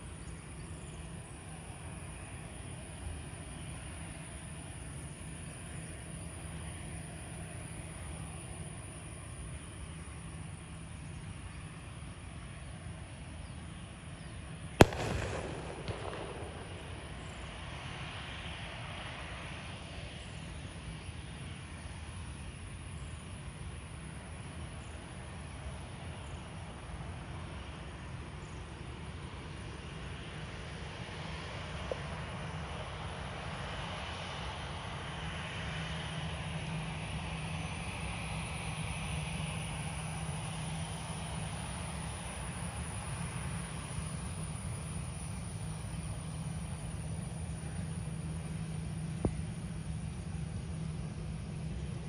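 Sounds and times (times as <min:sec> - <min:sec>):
distant jet engines running: 0:00.0 - 0:52.0
sharp bang with echo: 0:14.8 - 0:18.2.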